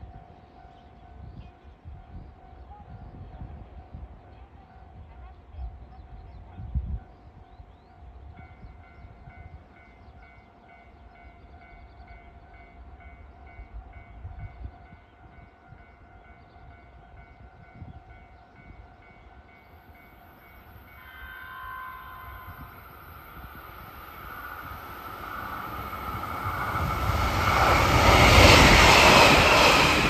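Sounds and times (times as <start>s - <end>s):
railway crossing alarm beeping: 8.0s - 30.0s
hiss of approaching train: 19.8s - 30.0s
train horn: 20.9s - 22.9s.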